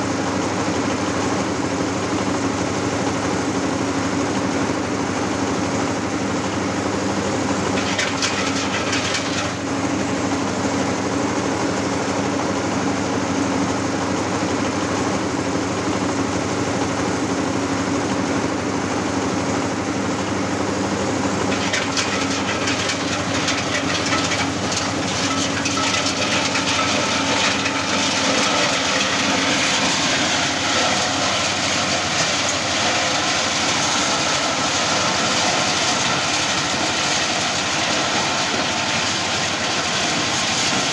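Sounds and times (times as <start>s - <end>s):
diesel engine drone: 0.0s - 40.9s.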